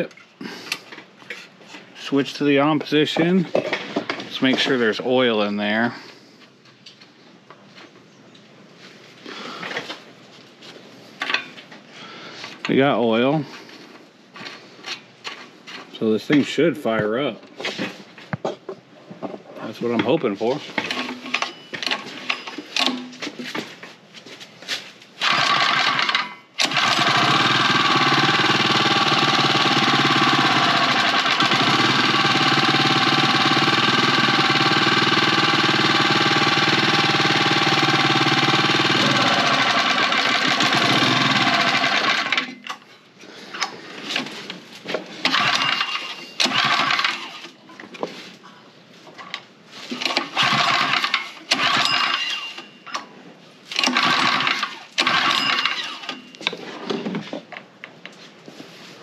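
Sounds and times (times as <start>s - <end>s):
knocks and clatter of handling engine: 17.6s - 23.8s, 25.2s - 42.9s, 44.1s - 48.1s, 49.1s - 53.1s, 53.7s - 57.7s
small engine pull-started and running: 25.2s - 42.6s, 45.2s - 47.6s, 49.9s - 53.0s, 53.7s - 56.4s.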